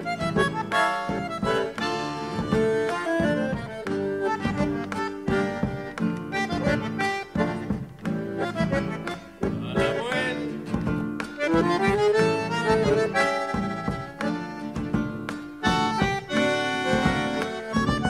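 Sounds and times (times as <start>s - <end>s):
accordion background music: 0.0s - 18.0s.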